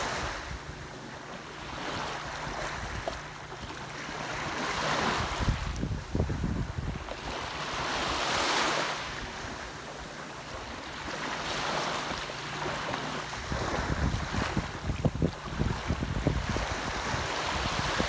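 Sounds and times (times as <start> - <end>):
waves washing up beach: 0.0 - 18.0
wind buffeting microphone: 4.4 - 8.4, 13.3 - 18.0.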